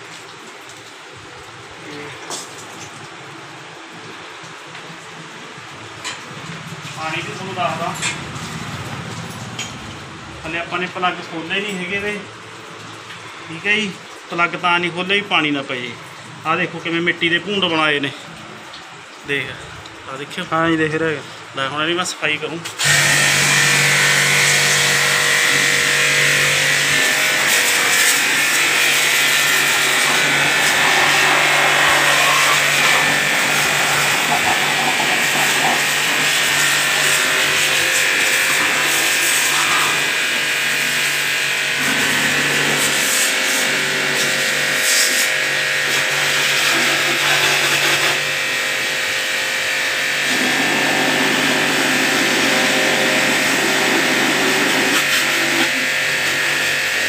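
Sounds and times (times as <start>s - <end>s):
pressure washer pump hum: 0.0s - 57.0s
water jet hissing: 22.8s - 49.0s.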